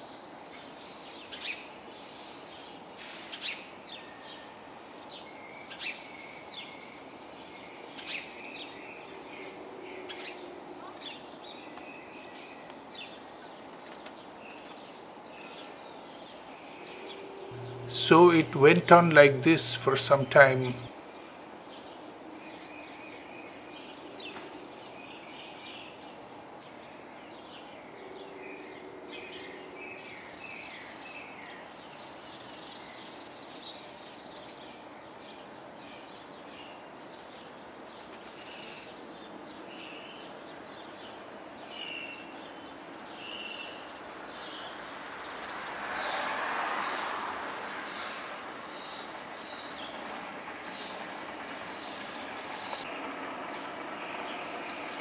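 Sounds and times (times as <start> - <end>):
birds chirping: 16.4 - 20.9
steady background hum: 17.2 - 20.9.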